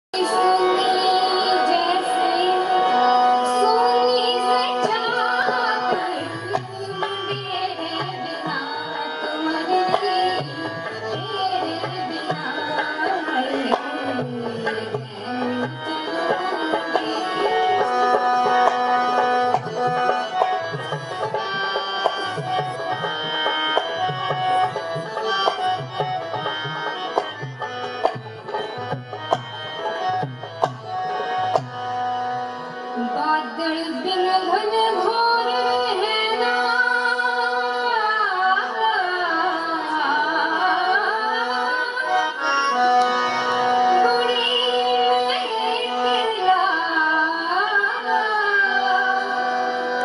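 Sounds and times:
woman singing: 0.2 - 18.6, 33.0 - 42.4, 43.8 - 50.0.

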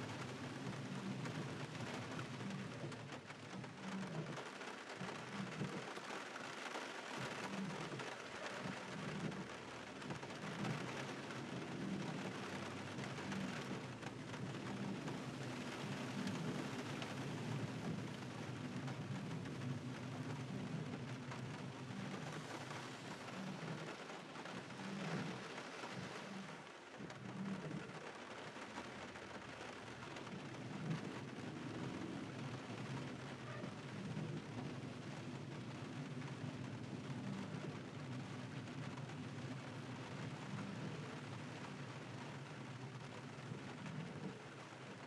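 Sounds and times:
car tyres on wet road: 0.0 - 45.0
steady rain hiss: 0.0 - 45.0.

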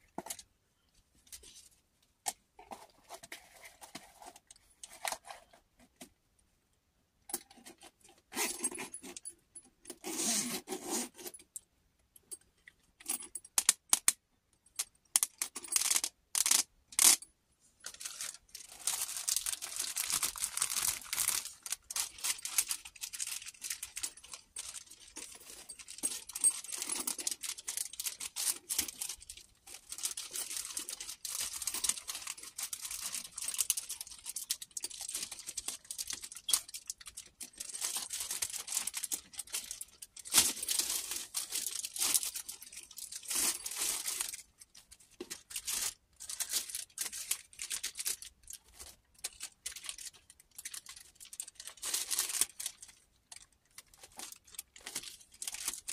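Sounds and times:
plastic bag crinkling: 17.8 - 55.9.

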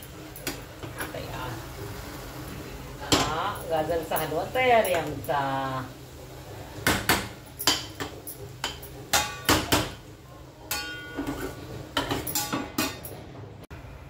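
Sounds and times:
steel plate lid clanking: 6.8 - 10.0, 10.7 - 13.2.

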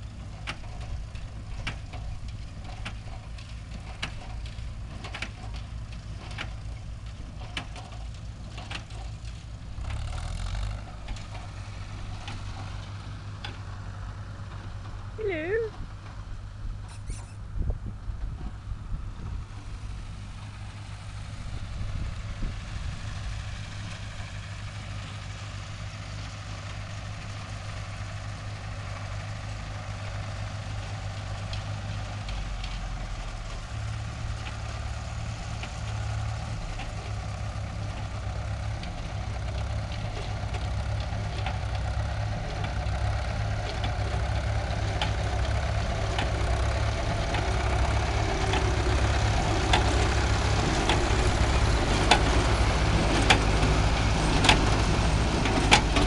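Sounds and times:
tractor and baler engines running: 0.0 - 56.0.

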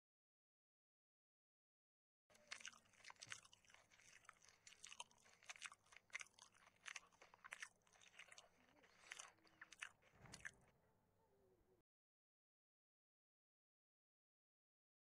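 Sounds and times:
person chewing raw vegetables: 2.3 - 10.8.

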